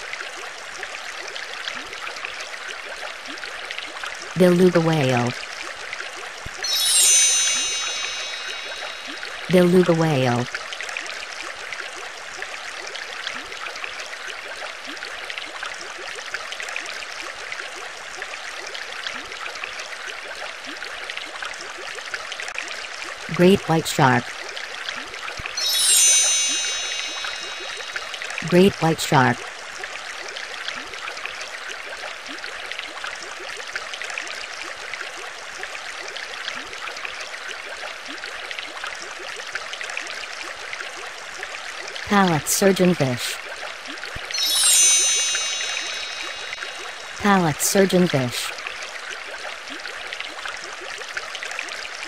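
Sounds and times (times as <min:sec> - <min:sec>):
bubbling trickling water: 0:05.0 - 0:23.3, 0:24.1 - 0:28.4, 0:43.4 - 0:47.2.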